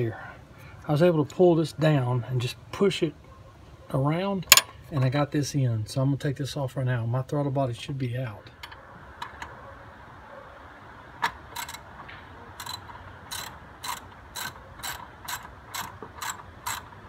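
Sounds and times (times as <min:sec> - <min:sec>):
ratchet wrench clicking: 0:11.5 - 0:11.9, 0:12.6 - 0:17.0.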